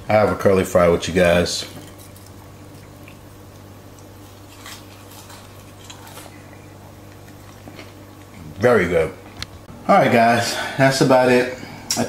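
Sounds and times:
steady low hum: 0.0 - 12.0
person chewing crunchy food: 1.6 - 8.6.

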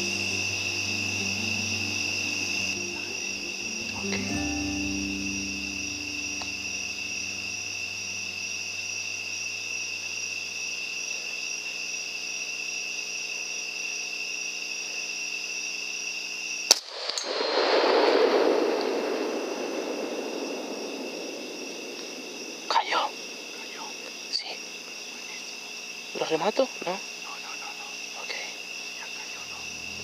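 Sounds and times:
crickets chirping: 0.0 - 30.0
rifle shot: 16.7 - 22.7.

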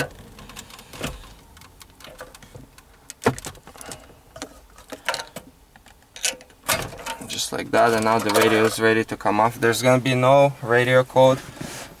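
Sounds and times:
metal chassis handled: 0.0 - 9.0.

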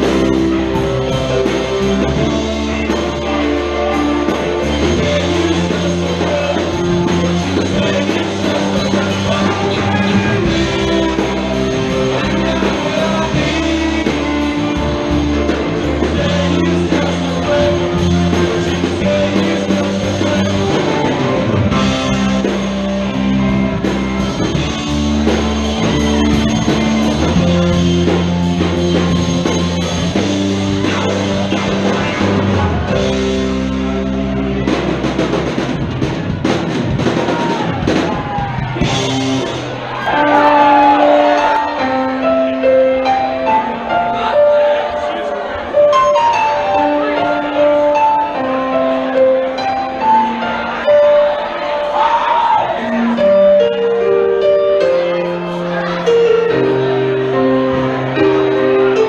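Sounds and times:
lead vocal singing: 0.0 - 23.4
drum kit: 0.0 - 43.8
bass guitar: 0.0 - 59.0
electric guitar: 0.0 - 59.0
keyboard: 0.0 - 59.0.

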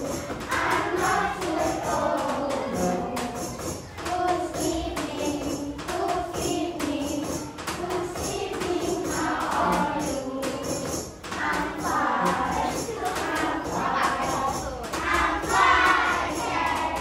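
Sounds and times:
jingling tambourine: 0.0 - 17.0
voices singing: 0.0 - 17.0.

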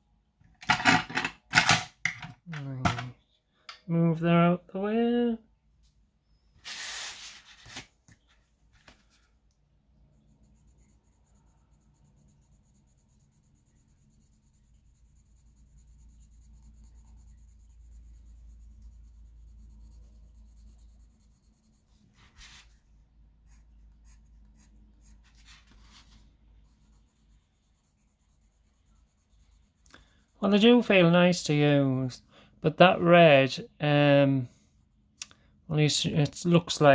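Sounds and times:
pencil scratching on paper: 10.0 - 30.8.

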